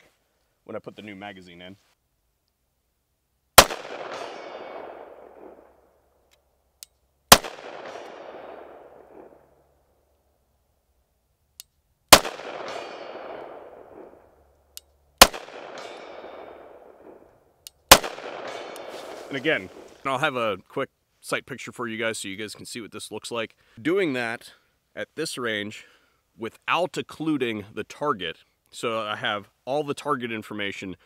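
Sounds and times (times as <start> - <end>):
pistol shots with echo: 3.6 - 5.7, 7.3 - 9.4, 12.1 - 14.2, 15.2 - 17.2, 17.9 - 19.4.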